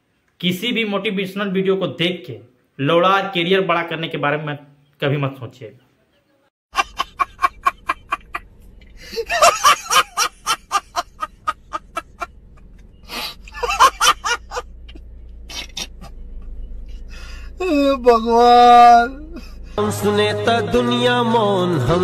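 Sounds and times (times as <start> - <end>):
man laughing hard: 6.7 - 8.4, 9.0 - 12.3, 13.1 - 14.6, 15.5 - 16.2.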